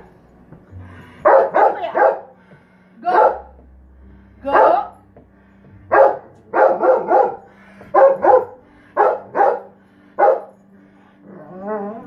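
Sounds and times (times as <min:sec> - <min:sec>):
large dog barking: 0:01.2 - 0:02.3, 0:03.1 - 0:03.5, 0:04.5 - 0:04.9, 0:05.9 - 0:10.5.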